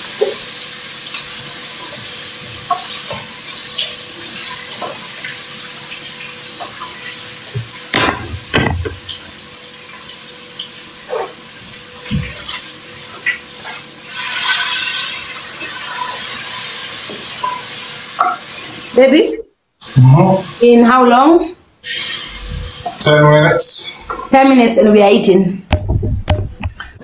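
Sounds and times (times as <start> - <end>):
food sizzling in a frying pan: 0.0 - 21.1, 21.8 - 23.4
louder knocks: 7.9 - 9.0, 25.7 - 26.8.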